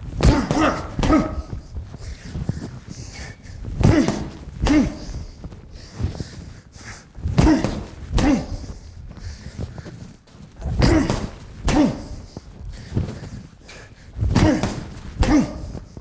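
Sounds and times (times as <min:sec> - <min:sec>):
gloved punches on heavy bag: 0:00.2 - 0:01.6, 0:03.8 - 0:05.1, 0:07.3 - 0:08.7, 0:10.6 - 0:12.2, 0:14.2 - 0:15.8
boxer grunting: 0:00.2 - 0:01.8, 0:03.8 - 0:05.4, 0:07.3 - 0:08.8, 0:10.6 - 0:12.4, 0:14.3 - 0:16.0.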